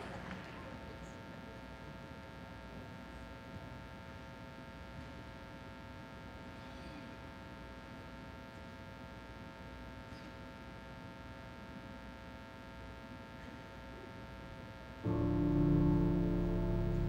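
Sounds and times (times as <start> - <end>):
low steady hum: 14.9 - 17.0.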